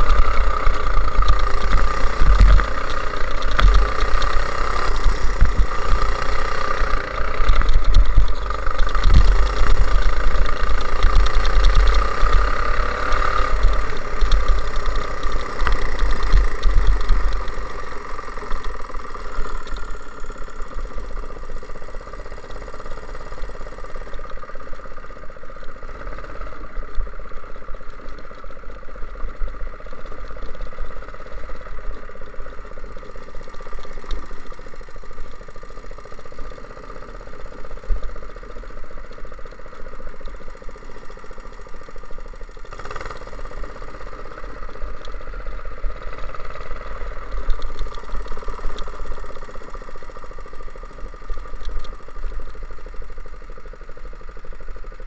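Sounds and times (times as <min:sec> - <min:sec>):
go-kart engine running hard: 0:00.0 - 0:55.0.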